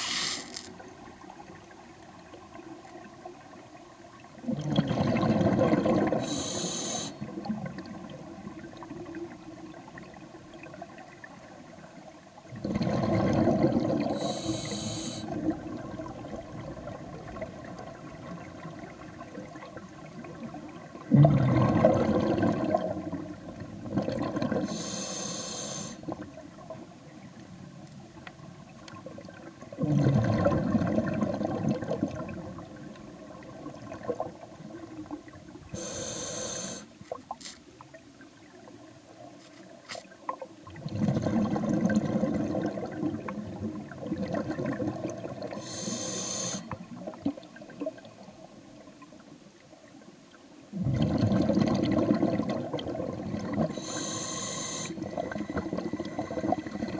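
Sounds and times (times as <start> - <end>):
regulator hiss on inhale: 0.0 - 0.7, 6.2 - 7.2, 14.1 - 15.4, 24.6 - 26.1, 35.7 - 37.0, 45.6 - 46.8, 53.7 - 56.9
exhaled bubbles rushing: 4.4 - 6.3, 12.5 - 14.4, 15.3 - 24.7, 29.1 - 35.4, 40.7 - 45.6, 50.7 - 53.8.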